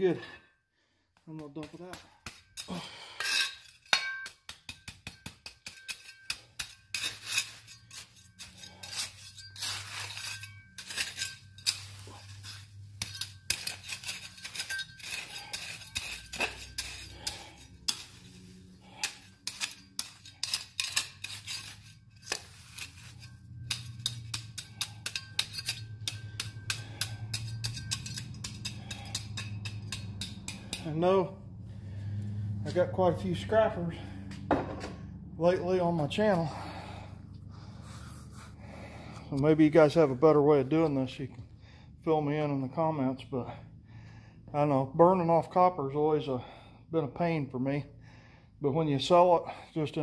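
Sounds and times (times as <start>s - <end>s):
metal trowel scraping wire: 1.5s - 34.2s, 35.4s - 41.0s.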